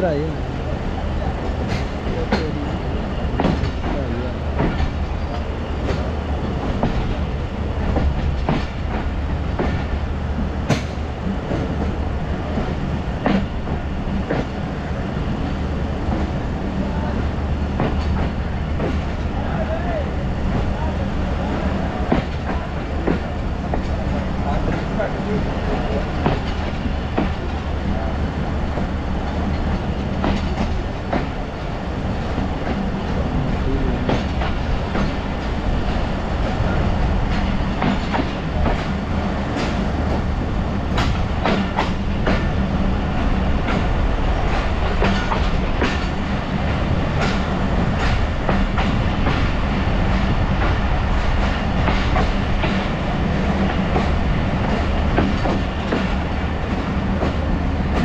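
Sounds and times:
train rumbling: 0.0 - 58.0
wheels clacking over rail joints: 3.3 - 10.0, 28.8 - 58.0.

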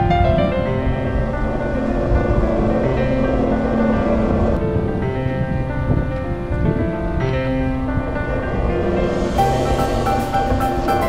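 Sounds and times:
low rumble: 0.0 - 11.0
slow held music notes: 7.6 - 11.0.

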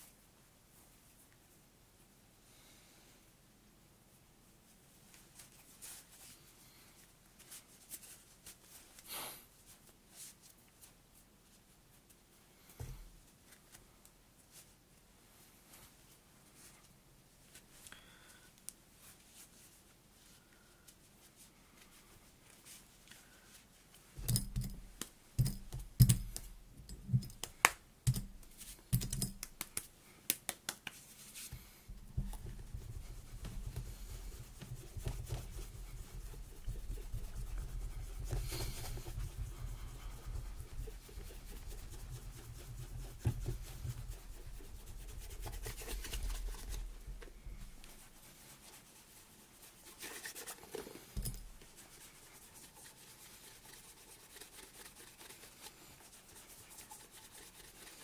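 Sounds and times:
rubbing on leather boot: 31.0 - 58.0.

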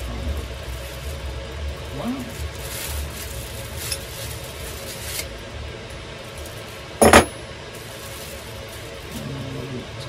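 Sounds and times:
plastic bag crinkling: 2.3 - 5.2, 7.8 - 9.2.

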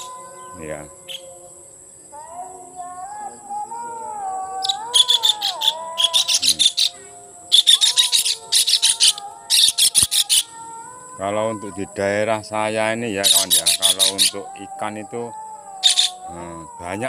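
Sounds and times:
bird harsh chattering calls: 0.0 - 1.3, 4.6 - 10.6, 13.2 - 14.4, 15.8 - 16.3
wavering whistle-like tone: 0.0 - 1.5, 4.6 - 10.5, 13.2 - 17.0.

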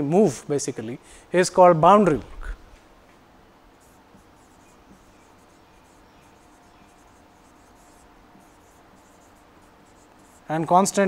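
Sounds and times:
marker pen writing on whiteboard: 3.7 - 11.0.

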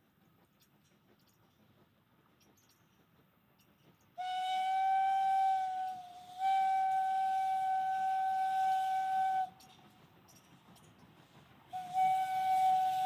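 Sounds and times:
steam locomotive whistle: 4.2 - 9.8, 11.7 - 13.0.

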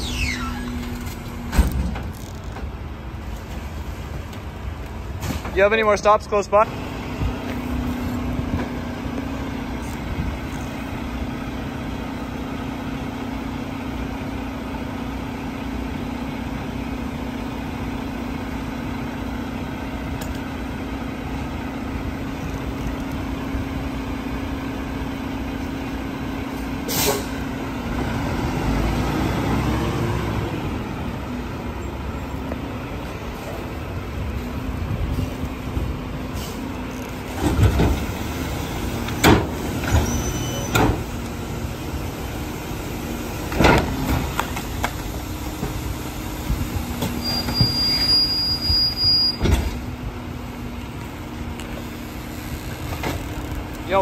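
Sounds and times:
sharp air hiss: 26.8 - 27.4.

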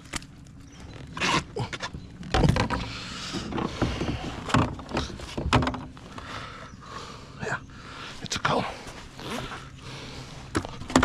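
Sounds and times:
knocks and clatter on kayak: 1.8 - 6.0.

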